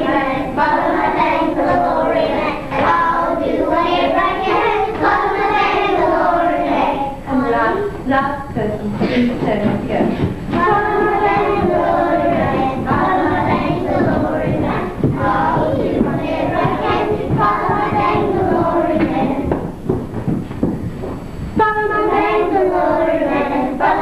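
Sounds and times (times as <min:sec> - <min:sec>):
children singing in unison: 0:00.0 - 0:07.2, 0:10.5 - 0:19.6, 0:21.6 - 0:24.0.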